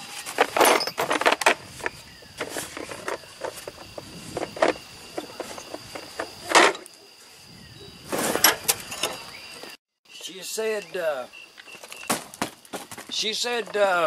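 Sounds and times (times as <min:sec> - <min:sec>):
knocks and clatters of handling: 0:00.0 - 0:07.0
high-pitched insect chorus: 0:00.0 - 0:14.0.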